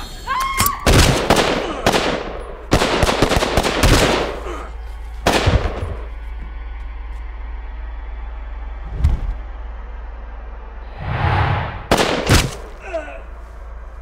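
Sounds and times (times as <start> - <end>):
low steady drone: 1.2 - 14.0
handgun shots: 11.9 - 12.7.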